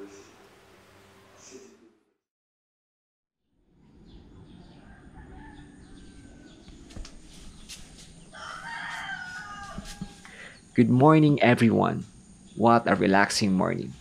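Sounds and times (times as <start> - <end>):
faint outdoor background noise: 3.6 - 14.0
rooster crowing: 4.5 - 6.7, 8.2 - 10.6.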